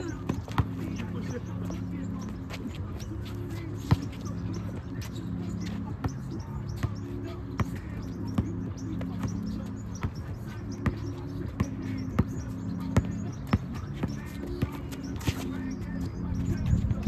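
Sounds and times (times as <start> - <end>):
basketball bouncing: 0.0 - 2.6, 6.0 - 16.4.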